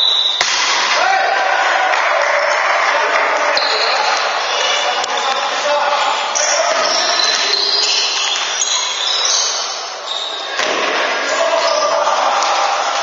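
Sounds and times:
players calling out: 0:00.0 - 0:13.0
sharp smack: 0:00.4 - 0:00.9
shoes squeaking on court floor: 0:03.5 - 0:13.0
ball bouncing: 0:10.5 - 0:11.4.

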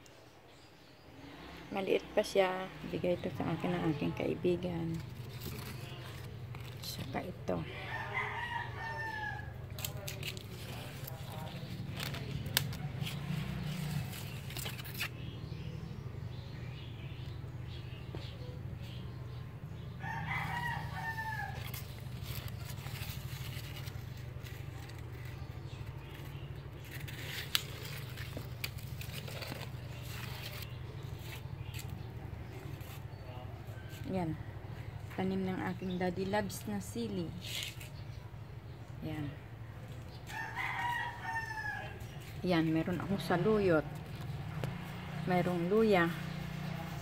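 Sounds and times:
plant leaves rustling and clicking: 0:02.2 - 0:07.7, 0:08.8 - 0:15.2, 0:20.4 - 0:34.2, 0:35.0 - 0:38.2
rooster crowing: 0:07.7 - 0:09.6, 0:20.0 - 0:21.7, 0:40.3 - 0:42.0.

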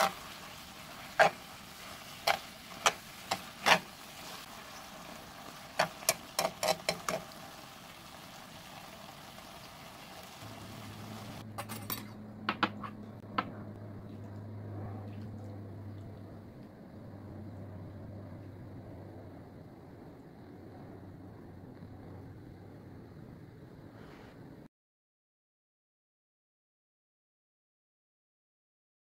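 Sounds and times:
metal tongs clacking on wok: 0:05.8 - 0:07.3
low steady hum: 0:10.4 - 0:24.7.

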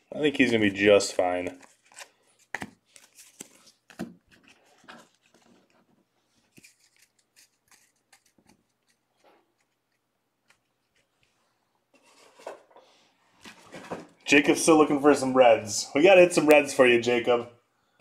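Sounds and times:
trading cards being handled: 0:00.5 - 0:11.4.

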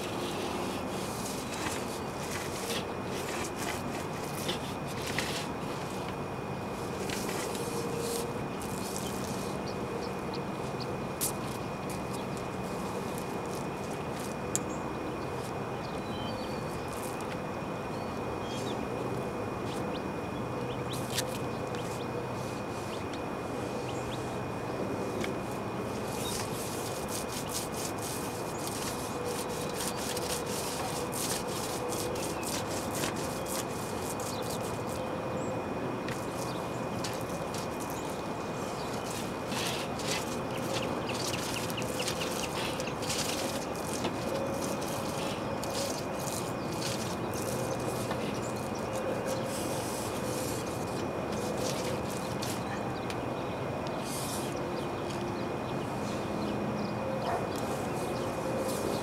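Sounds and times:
air conditioning unit humming: 0:00.0 - 0:59.0
light clicks and scrapes: 0:06.9 - 0:09.4.

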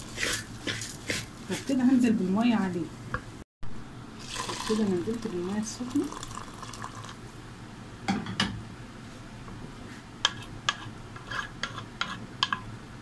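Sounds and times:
wooden spoon stirring rice in water: 0:00.0 - 0:02.0.

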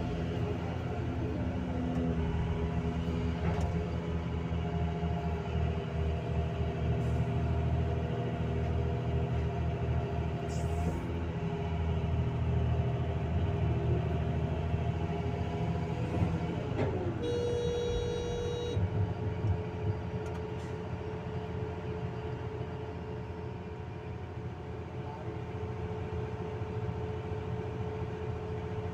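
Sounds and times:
excavator diesel engine running: 0:00.0 - 0:28.9
brief steady tone: 0:17.2 - 0:18.8.

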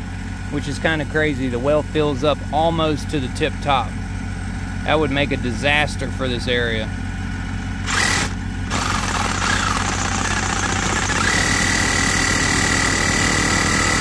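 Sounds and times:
engine idling: 0:00.0 - 0:14.0
reciprocating saw cutting pipe: 0:07.8 - 0:14.0.

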